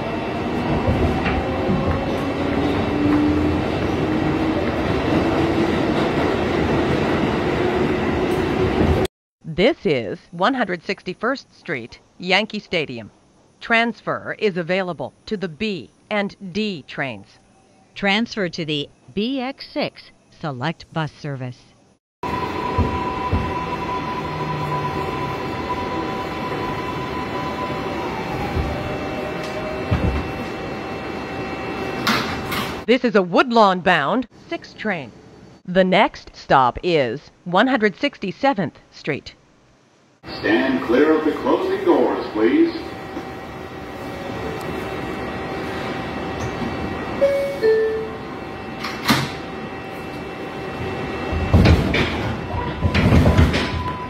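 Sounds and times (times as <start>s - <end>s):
subway car ventilation hum: 0.0s - 9.1s, 21.8s - 32.9s, 38.8s - 54.0s
train wheels rumbling on track: 0.0s - 9.1s.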